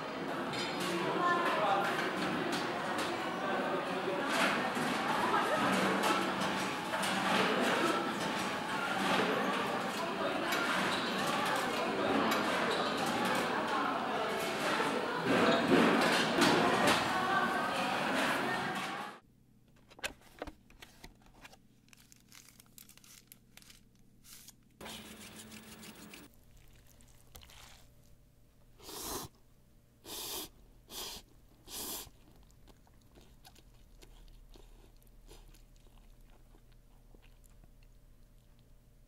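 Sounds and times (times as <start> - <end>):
plastic packaging rustling: 20.2 - 28.1
crunchy chewing bites: 25.2 - 28.1, 31.5 - 38.7.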